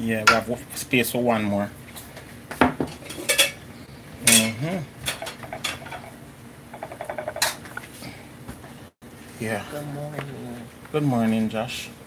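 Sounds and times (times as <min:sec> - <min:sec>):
utensil clinking on glass dishes: 0:02.8 - 0:03.6, 0:04.2 - 0:06.1.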